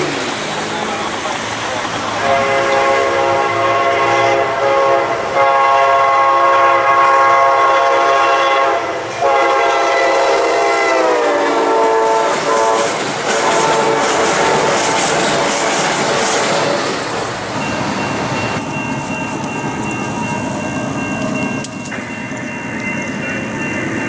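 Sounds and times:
train horn blasts: 2.2 - 16.9
train wheels clattering: 11.7 - 24.0.

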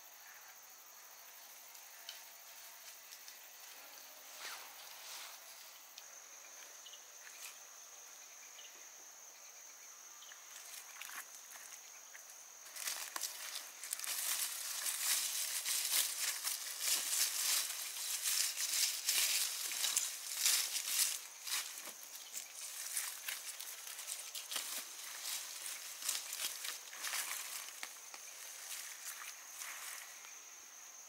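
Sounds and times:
high-pitched insect call: 0.0 - 31.0
leafy plants rustling and crackling: 10.4 - 30.5.

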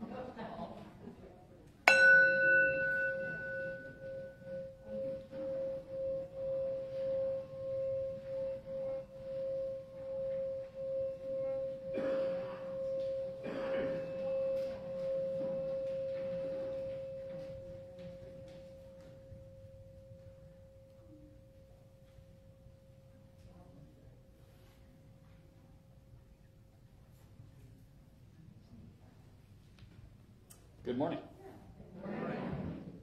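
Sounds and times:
singing bowl ringing: 1.9 - 24.2.

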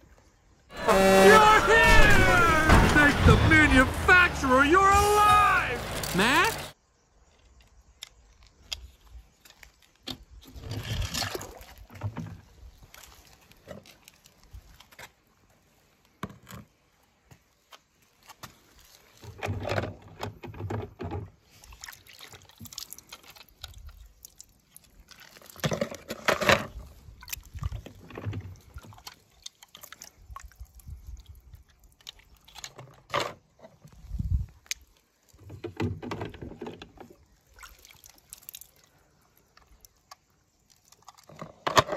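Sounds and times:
water sloshing and splashing: 9.0 - 16.0, 17.2 - 41.9.

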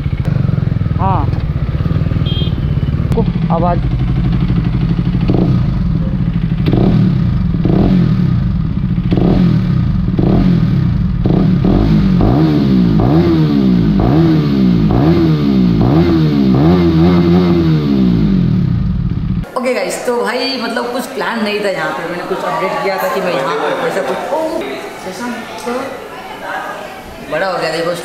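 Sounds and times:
motorcycle engine revving: 0.0 - 19.5.

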